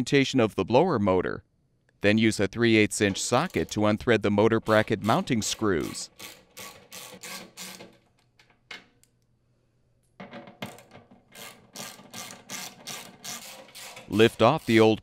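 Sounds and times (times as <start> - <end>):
ratchet wrench clicking: 6.2 - 7.8.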